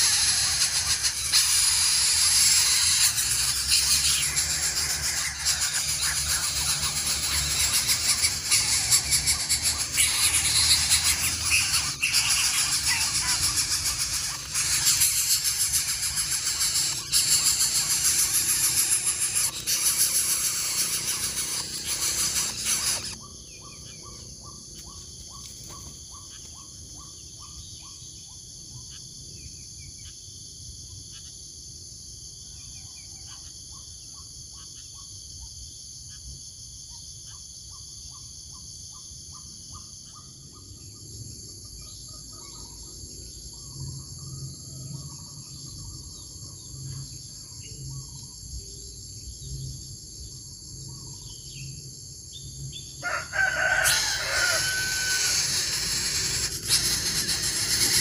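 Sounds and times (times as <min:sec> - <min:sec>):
steady high-pitched drone: 0:00.0 - 0:24.0, 0:53.7 - 0:58.0
birds chirping: 0:00.0 - 0:28.4, 0:52.4 - 0:58.0.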